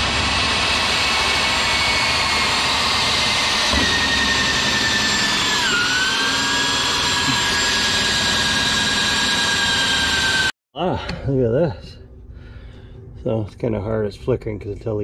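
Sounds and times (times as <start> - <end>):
vacuum rushing with high whine: 0.0 - 10.5.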